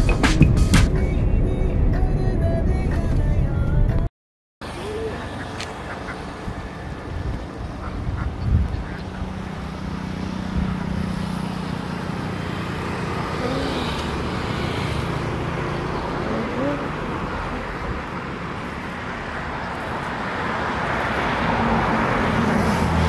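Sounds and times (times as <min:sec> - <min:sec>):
road traffic noise: 0:04.6 - 0:23.0
ducks quacking: 0:04.8 - 0:06.8, 0:07.6 - 0:09.5.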